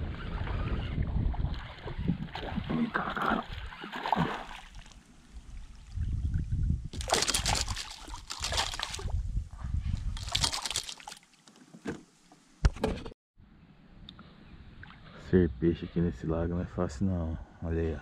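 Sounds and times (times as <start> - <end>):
fish splashing in water: 3.3 - 5.0, 7.0 - 9.1, 10.2 - 11.4.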